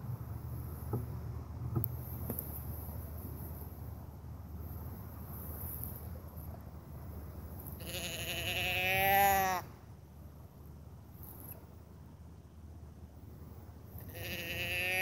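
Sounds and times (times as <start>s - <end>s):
deer bleat call: 7.8s - 9.7s, 14.1s - 15.0s.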